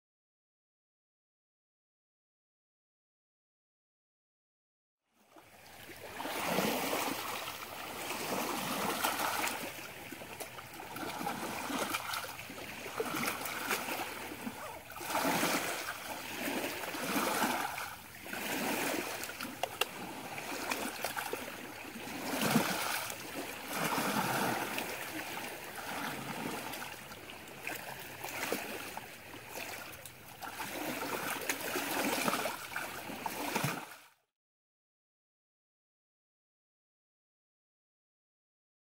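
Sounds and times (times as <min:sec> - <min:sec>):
small waves lapping on shore: 0:05.2 - 0:34.2.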